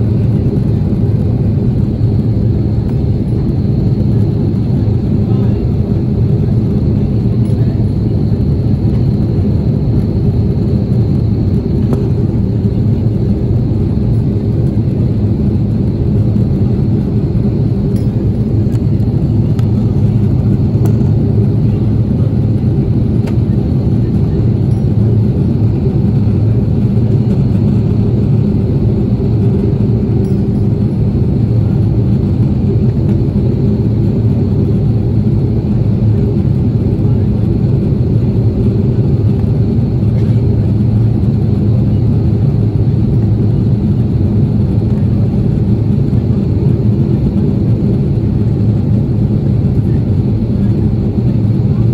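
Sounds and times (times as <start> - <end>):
airflow over fuselage: 0.0 - 51.9
jet engines droning: 0.0 - 51.9
faint high whine: 1.6 - 37.8.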